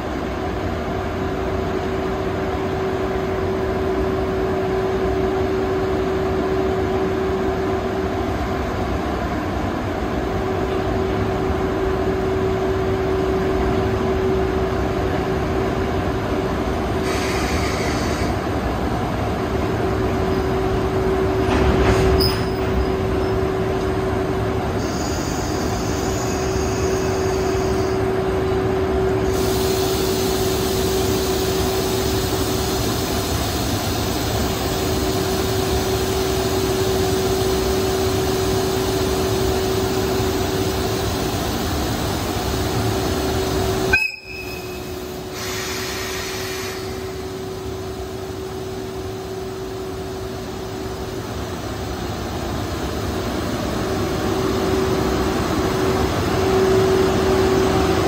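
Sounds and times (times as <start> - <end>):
electric locomotive humming: 0.0 - 58.0
shrill train whistle: 24.8 - 28.0, 43.9 - 47.1.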